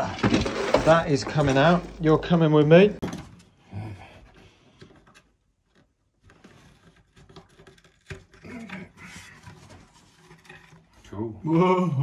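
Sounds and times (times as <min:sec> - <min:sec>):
wooden part rubbing and scraping: 0:06.2 - 0:11.1.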